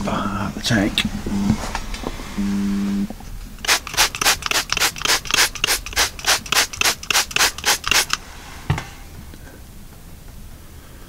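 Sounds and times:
trigger spray bottle squirting: 0:03.6 - 0:08.2.

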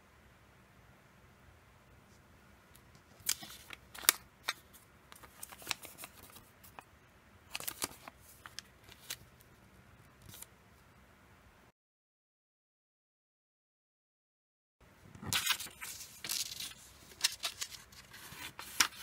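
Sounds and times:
paper crackling and rustling: 0:03.0 - 0:06.8, 0:07.5 - 0:09.4, 0:10.2 - 0:10.5, 0:15.2 - 0:19.0.

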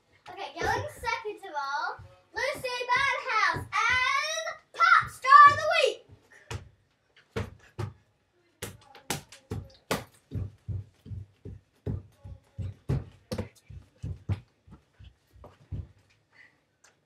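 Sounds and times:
child's feet thumping on floor: 0:00.6 - 0:01.2, 0:01.9 - 0:08.0, 0:08.6 - 0:16.1.

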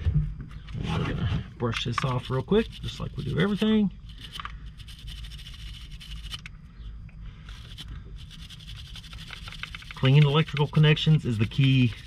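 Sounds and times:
faint low hum: 0:00.0 - 0:12.0
brush scrubbing: 0:02.0 - 0:06.4, 0:07.5 - 0:12.0.

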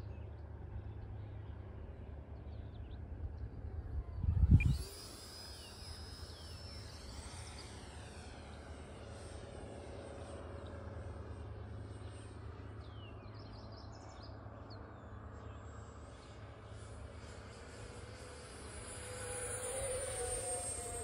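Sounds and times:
distant electric fan whine: 0:00.0 - 0:21.0
wind rumble on microphone: 0:02.7 - 0:05.3.

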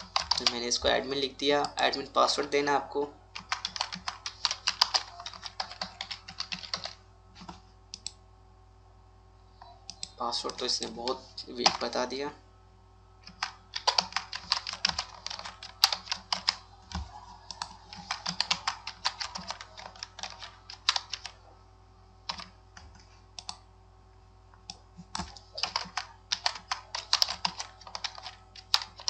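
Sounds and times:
keyboard typing clicks: 0:03.4 - 0:08.2, 0:13.3 - 0:21.4, 0:22.3 - 0:23.6, 0:24.6 - 0:29.0.

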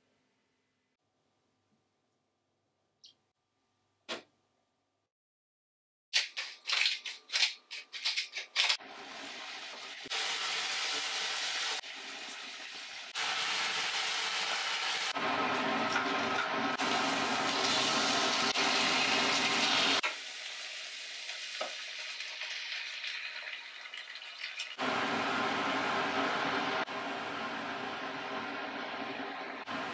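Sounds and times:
meat sizzling in frying pan: 0:08.9 - 0:15.2, 0:16.1 - 0:24.8.

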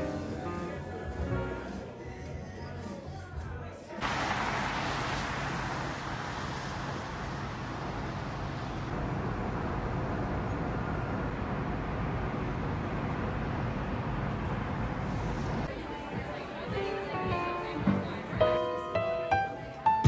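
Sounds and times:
city street traffic noise: 0:04.0 - 0:19.8.

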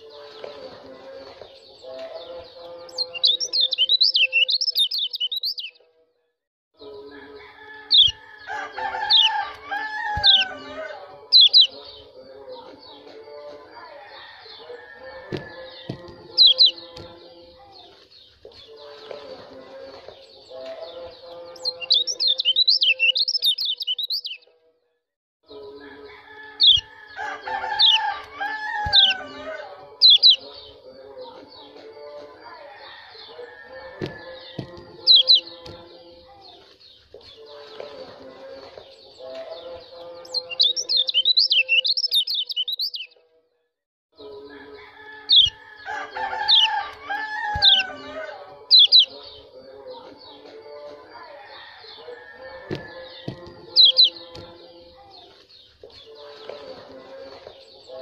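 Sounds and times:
bird singing chirps: 0:00.0 - 0:05.8, 0:06.8 - 0:24.5, 0:25.5 - 0:32.4, 0:33.0 - 0:43.2, 0:45.2 - 0:51.0, 0:51.7 - 0:58.0
bird warbling chirps: 0:02.9 - 0:05.8, 0:09.1 - 0:10.7, 0:11.3 - 0:12.0, 0:15.6 - 0:16.9, 0:21.6 - 0:24.4, 0:26.6 - 0:26.9, 0:27.8 - 0:28.2, 0:28.8 - 0:30.6, 0:34.5 - 0:35.6, 0:40.2 - 0:43.1, 0:45.3 - 0:45.6, 0:46.5 - 0:46.8, 0:47.5 - 0:48.0, 0:48.7 - 0:49.4, 0:53.8 - 0:54.2.

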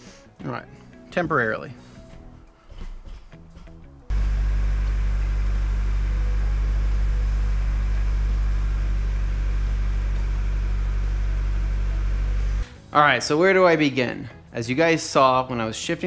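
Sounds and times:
car engine idling: 0:04.1 - 0:12.6.

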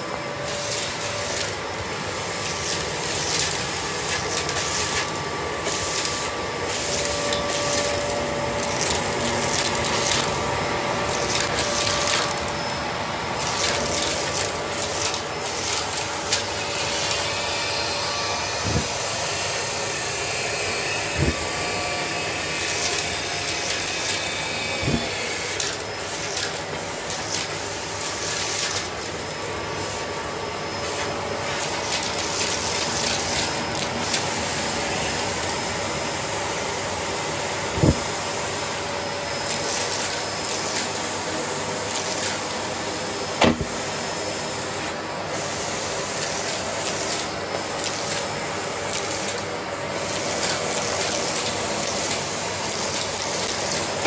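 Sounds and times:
vacuum cleaner whining: 0:00.0 - 0:54.0.

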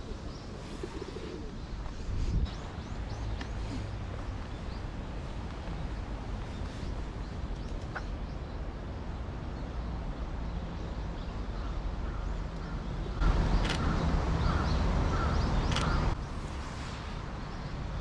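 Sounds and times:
birds calling: 0:00.0 - 0:08.8, 0:09.5 - 0:16.3
city street ambience: 0:00.0 - 0:18.0
sharp clicks: 0:15.7 - 0:16.0.

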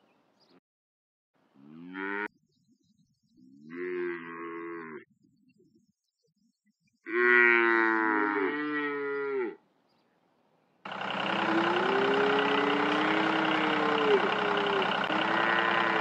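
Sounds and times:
cow mooing: 0:01.6 - 0:02.3, 0:03.7 - 0:05.0, 0:07.1 - 0:09.6, 0:11.2 - 0:16.0
engine running: 0:10.9 - 0:16.0.

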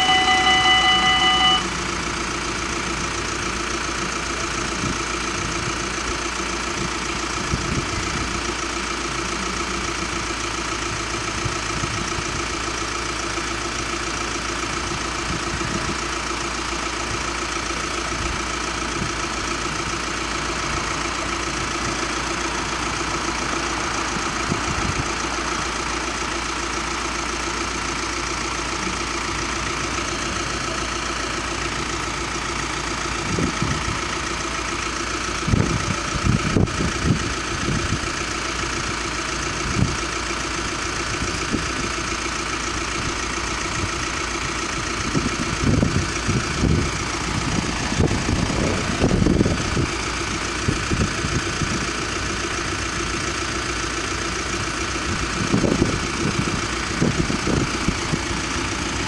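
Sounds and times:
level crossing bells ringing: 0:00.0 - 0:01.9
car engines idling: 0:00.0 - 0:59.0.

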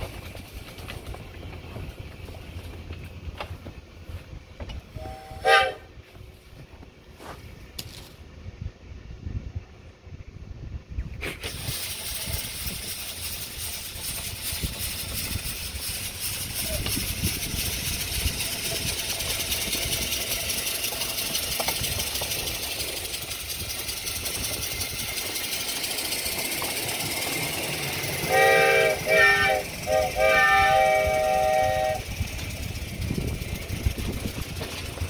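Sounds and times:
hissing locomotive exhaust: 0:00.0 - 0:07.4, 0:08.8 - 0:35.0
locomotive whistle blasts: 0:04.9 - 0:05.9, 0:28.1 - 0:32.2.

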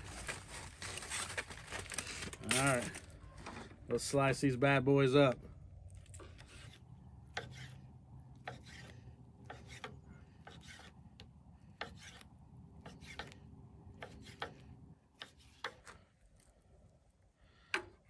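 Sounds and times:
knife slicing ribs: 0:06.4 - 0:15.8.

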